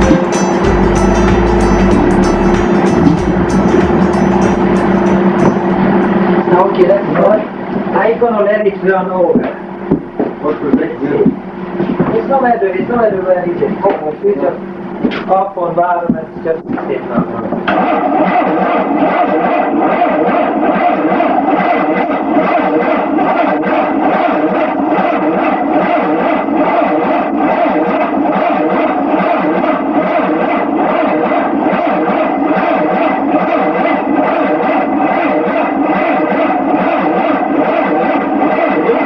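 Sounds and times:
engine buzzing hum: 0:00.0 - 0:08.4.

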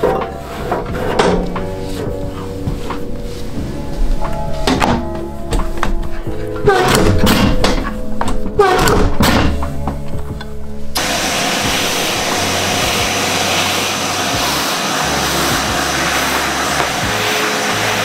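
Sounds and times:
vacuum cleaner suction: 0:11.0 - 0:18.0.

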